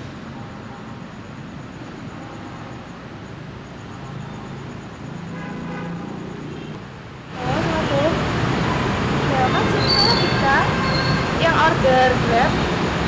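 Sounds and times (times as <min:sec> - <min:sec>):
traffic noise: 0:00.0 - 0:13.0
distant vehicle horn: 0:05.2 - 0:06.8.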